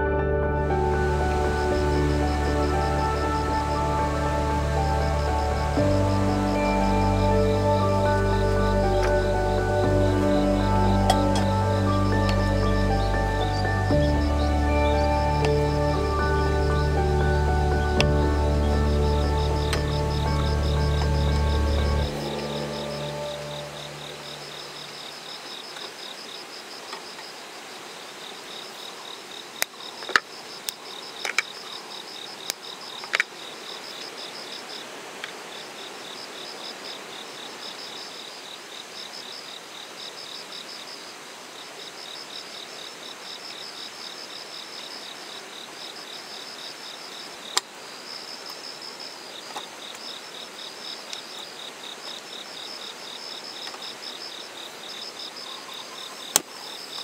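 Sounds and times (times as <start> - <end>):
insects chirping in trills: 0.8 - 57.0.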